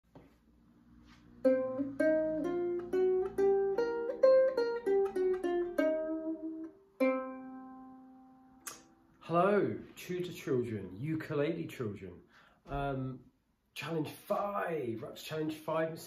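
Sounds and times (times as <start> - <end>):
ukulele plucked notes: 1.4 - 9.1.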